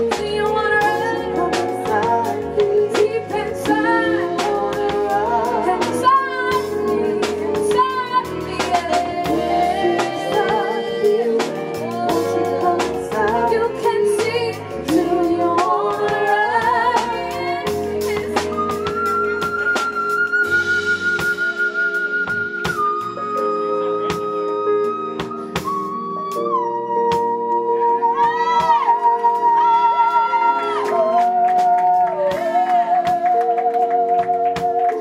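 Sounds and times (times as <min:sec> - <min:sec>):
woman singing with vibrato: 0:00.0 - 0:19.5, 0:27.8 - 0:35.0
bass line: 0:00.0 - 0:35.0
drum kit beat: 0:00.0 - 0:35.0
live band playing: 0:00.0 - 0:35.0.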